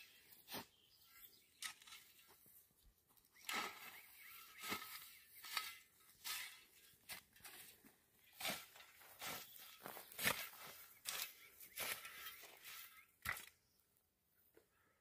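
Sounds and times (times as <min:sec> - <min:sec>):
rake scraping through dry grass: 0:03.4 - 0:13.4.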